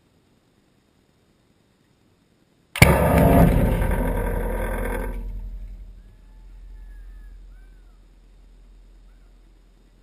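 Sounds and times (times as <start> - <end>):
explosion roar: 2.8 - 9.0
low rumble: 2.8 - 10.0
birds chirping: 5.8 - 10.0.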